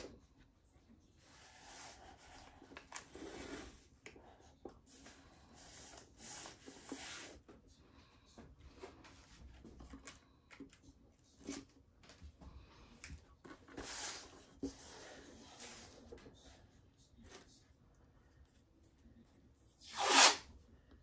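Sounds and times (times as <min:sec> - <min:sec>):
tape tearing and rubbing: 0:19.8 - 0:20.5.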